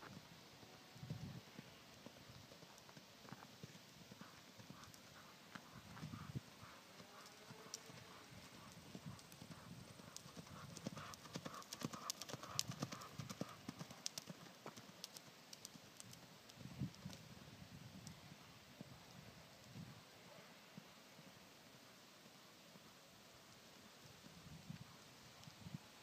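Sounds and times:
pony hoofbeats on sand: 0:02.4 - 0:14.8.

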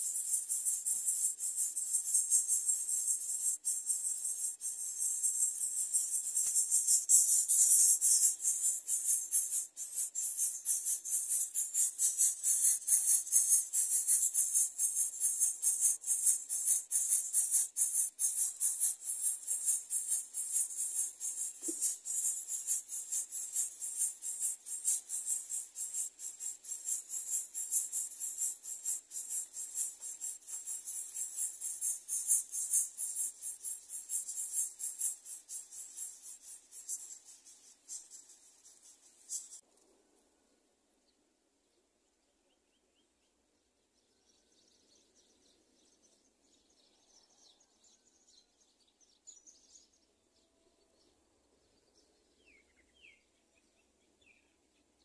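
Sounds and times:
insect chorus buzzing: 0:00.0 - 0:39.6.

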